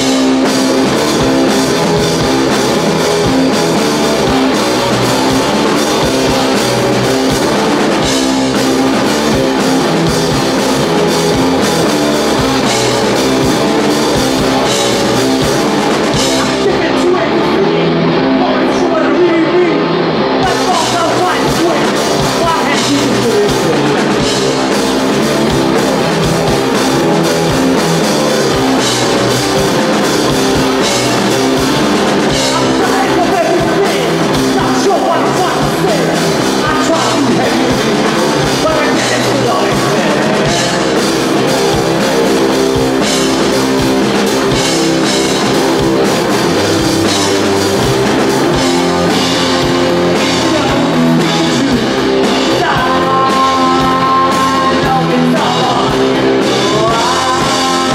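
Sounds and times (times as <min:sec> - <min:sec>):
bass guitar: 0:00.0 - 0:57.9
drum kit: 0:00.0 - 0:57.9
electric guitar: 0:00.0 - 0:57.9
man singing: 0:03.8 - 0:07.8, 0:12.4 - 0:26.3, 0:28.6 - 0:43.6, 0:48.4 - 0:57.9.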